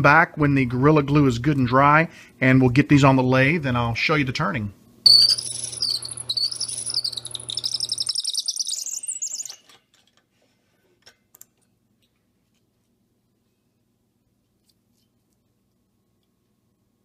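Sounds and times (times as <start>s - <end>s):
cutter squealing against wood: 5.1s - 9.7s.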